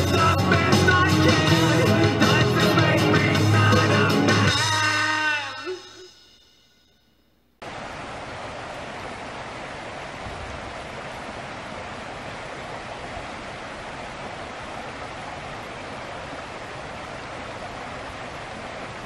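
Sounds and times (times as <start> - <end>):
stream rushing: 7.6 - 19.0.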